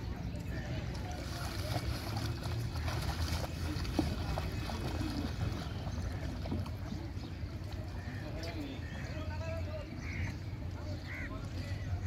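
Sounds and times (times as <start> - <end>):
faint distant voices: 0.0 - 12.0
water splashed by hand: 0.9 - 7.9.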